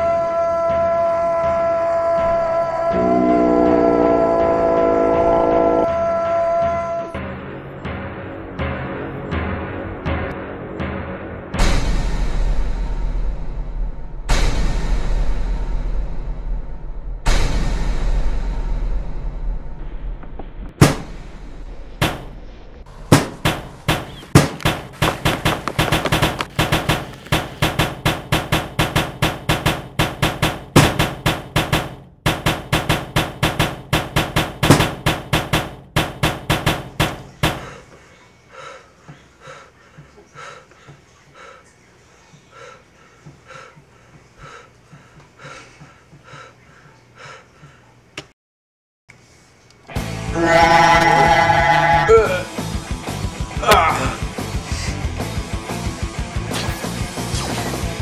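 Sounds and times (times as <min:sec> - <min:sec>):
fast drum beat music: 0:52.4 - 0:58.0.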